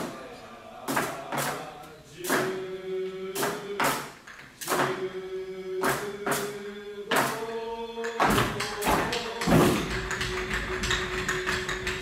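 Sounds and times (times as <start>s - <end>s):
sharp drum strikes: 2.2s - 2.6s, 3.4s - 5.0s, 5.8s - 7.5s, 8.2s - 12.0s
person singing long notes: 4.9s - 12.0s.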